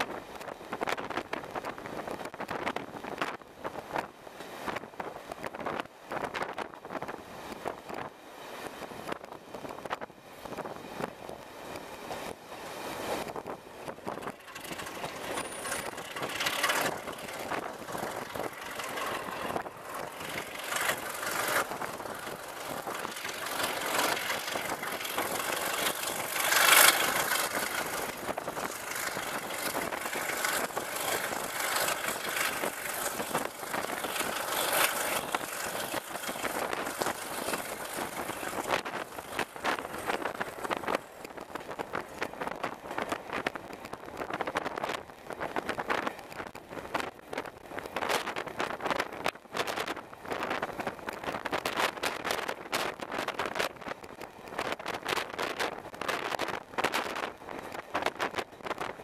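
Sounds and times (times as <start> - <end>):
train wheels on rails: 0.0 - 55.6
short clicks of wheels: 11.3 - 43.4.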